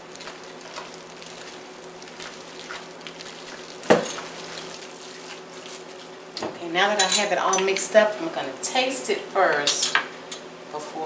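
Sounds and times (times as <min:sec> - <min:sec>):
spatula squishing and scraping: 0:00.0 - 0:06.2.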